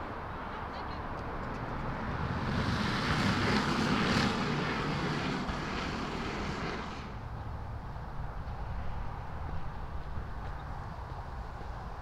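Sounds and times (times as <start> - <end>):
vehicle passing by: 1.6 - 9.7.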